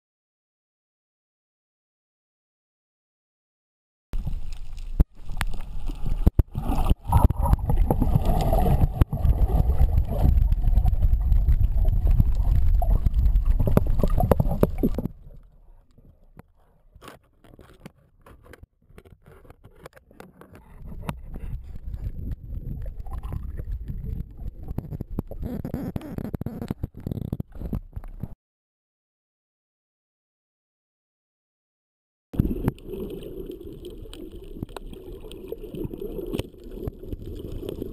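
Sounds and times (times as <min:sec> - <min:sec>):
water rushing underwater: 0:04.2 - 0:15.9, 0:20.7 - 0:25.5, 0:32.4 - 0:37.9.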